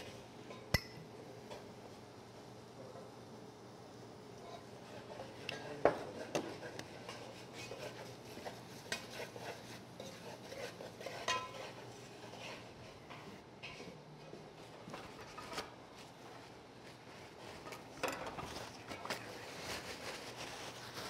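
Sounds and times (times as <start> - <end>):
spices toasting in oil: 6.2 - 13.2
spatula scraping in pot: 6.2 - 13.3.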